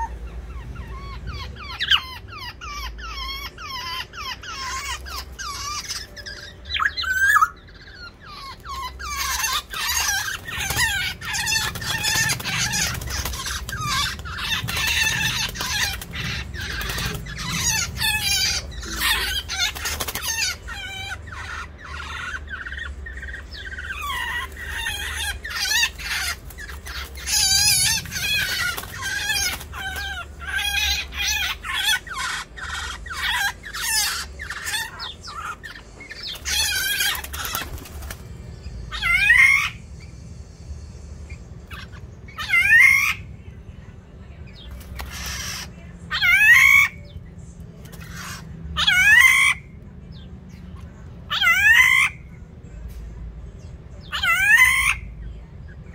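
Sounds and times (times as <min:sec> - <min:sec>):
birds giving harsh calls: 0:00.0 - 0:55.9
wing flapping: 0:36.5 - 0:38.3.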